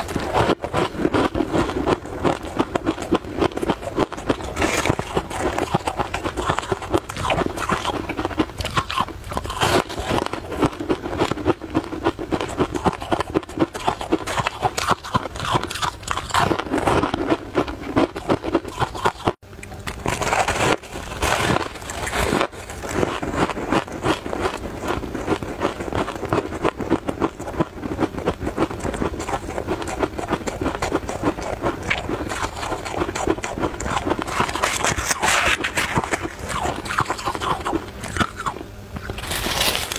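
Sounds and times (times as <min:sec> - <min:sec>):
crunching and chewing ice: 0:00.0 - 0:39.9
scraping in a bowl: 0:32.0 - 0:39.9.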